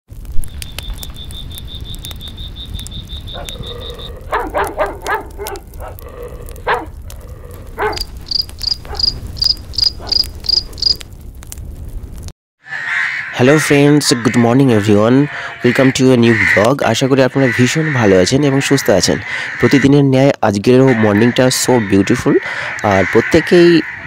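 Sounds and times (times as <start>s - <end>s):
campfire crackling: 0.1s - 12.3s
crickets chirping: 0.5s - 5.0s, 7.8s - 11.0s.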